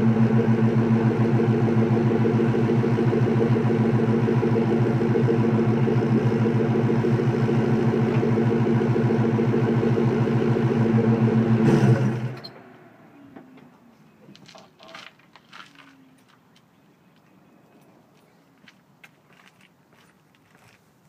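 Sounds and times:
car engine idling: 0:00.0 - 0:13.8.

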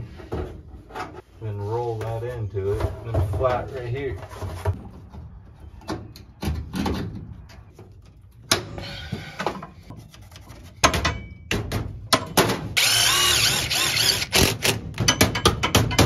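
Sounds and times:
scraping and rustling: 0:00.8 - 0:05.3.

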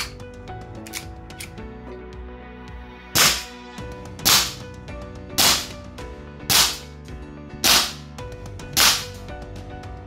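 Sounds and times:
airsoft pistol shots: 0:03.2 - 0:03.5, 0:04.2 - 0:04.6, 0:05.4 - 0:05.8, 0:06.5 - 0:06.8, 0:07.6 - 0:08.0, 0:08.8 - 0:09.2.

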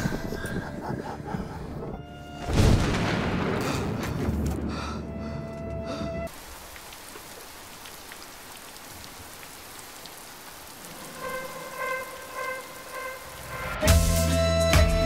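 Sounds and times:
steady rain-like hiss: 0:06.3 - 0:14.3
loud music: 0:13.6 - 0:15.0.

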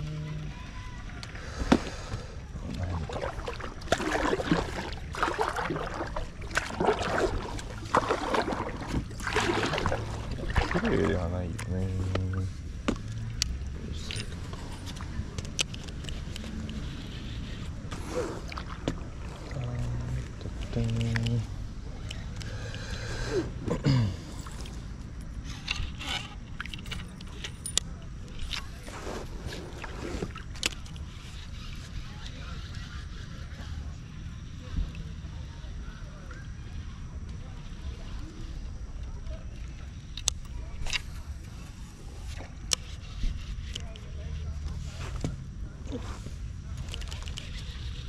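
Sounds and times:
wind and water noise: 0:00.0 - 0:48.0
paddle strokes splashing water: 0:02.9 - 0:13.7, 0:17.0 - 0:19.6, 0:28.6 - 0:32.0.

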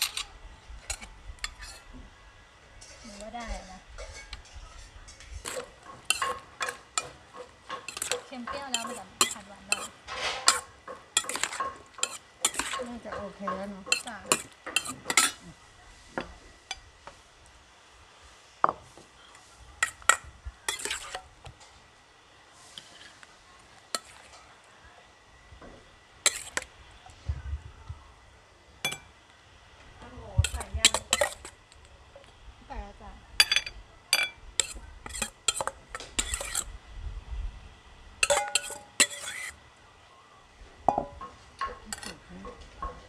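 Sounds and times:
metal spoon scraping and clinking bowl: 0:00.0 - 0:01.9, 0:02.8 - 0:15.4, 0:19.8 - 0:21.3, 0:23.9 - 0:24.4, 0:26.2 - 0:26.7, 0:30.4 - 0:31.6, 0:33.4 - 0:36.7, 0:38.2 - 0:39.6, 0:40.9 - 0:42.2.

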